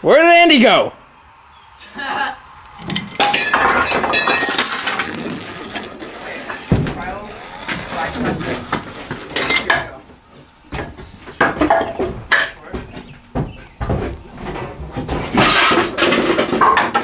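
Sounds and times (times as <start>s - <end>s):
indistinct voices: 4.6s - 10.0s
sharp knocks and clattering: 10.7s - 17.0s.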